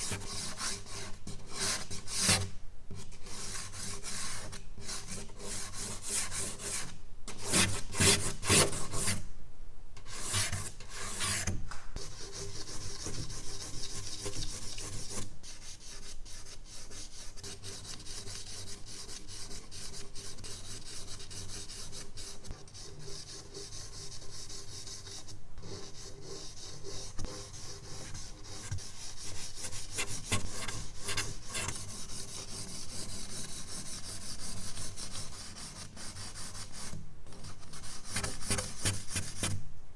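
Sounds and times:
charcoal scratching on paper: 10.1 - 39.6.

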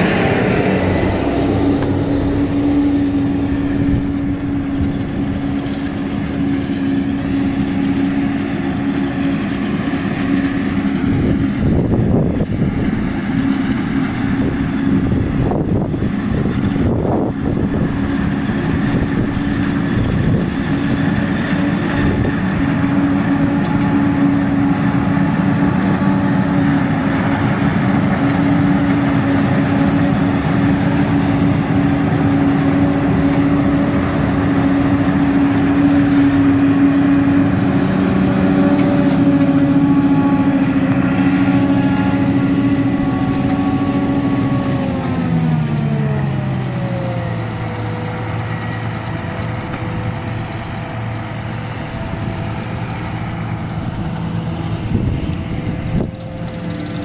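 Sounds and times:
forage harvester machine drone: 0.0 - 57.0.

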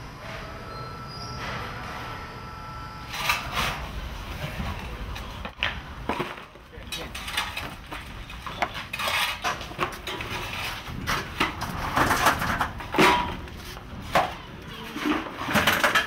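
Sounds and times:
tools scraping rubble: 6.1 - 16.0.

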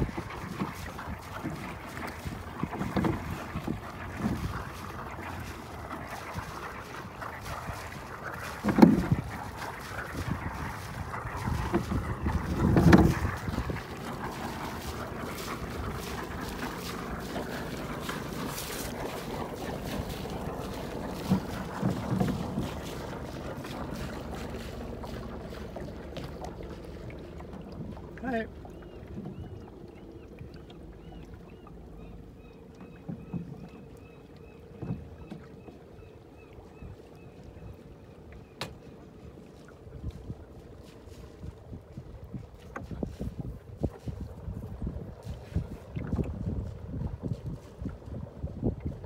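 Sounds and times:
wind buffeting microphone: 0.0 - 27.0, 39.9 - 49.0
water wash: 0.0 - 35.6
boat engine hum: 0.0 - 49.0
outboard motor running: 0.0 - 49.0.

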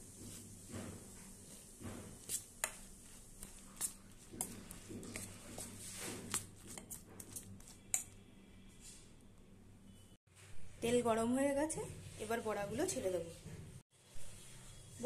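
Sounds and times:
wet batter squelching: 1.7 - 8.2.

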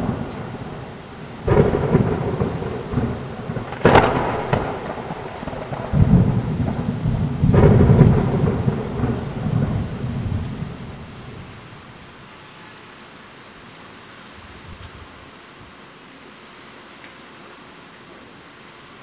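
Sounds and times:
thunder crack: 0.0 - 11.7
thunder rumbling: 0.0 - 12.0
heavy rain: 0.0 - 19.0.

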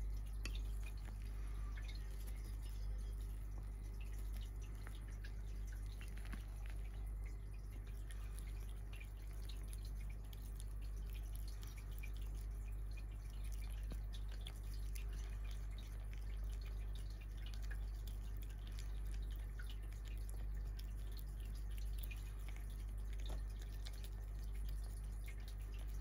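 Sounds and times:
kitten licking wet smacks: 0.0 - 26.0
low hum: 0.0 - 26.0.

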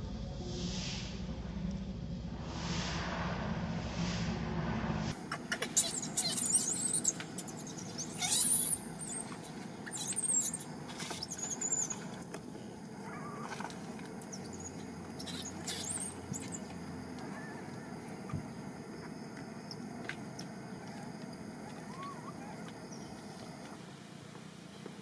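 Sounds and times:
monkeys squeaking and squealing: 5.3 - 12.1, 14.3 - 17.6, 21.7 - 22.7.

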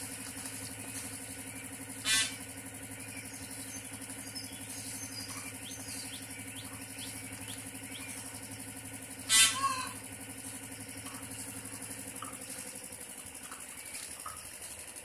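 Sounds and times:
steady low hum: 0.0 - 15.0
peahen calling: 1.9 - 2.4, 9.2 - 10.0.

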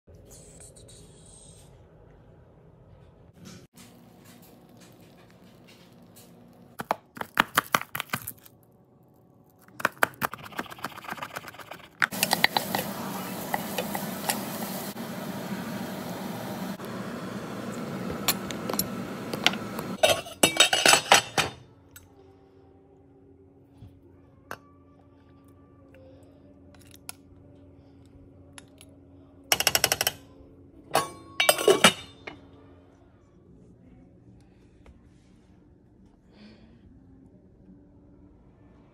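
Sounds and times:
wooden spoon stirring and scraping: 10.3 - 14.9
vegetables sizzling in pot: 12.1 - 20.0.

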